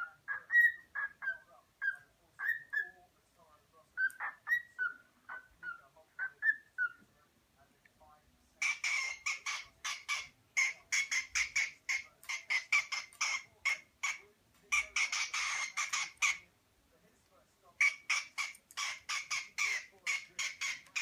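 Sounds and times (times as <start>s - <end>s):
cockatiel chirping and whistling: 0.0s - 3.0s, 4.0s - 7.0s, 14.8s - 16.4s.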